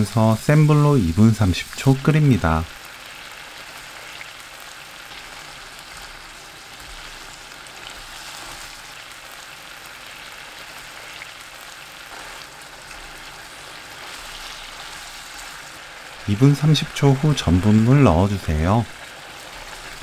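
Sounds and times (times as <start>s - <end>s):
sauce bubbling and sizzling: 0.0s - 20.0s
spatula stirring in pan: 5.0s - 16.2s, 19.0s - 20.0s.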